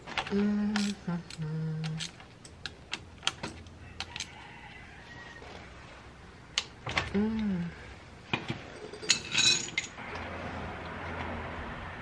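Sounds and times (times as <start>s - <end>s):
rooster crowing: 3.8s - 5.8s.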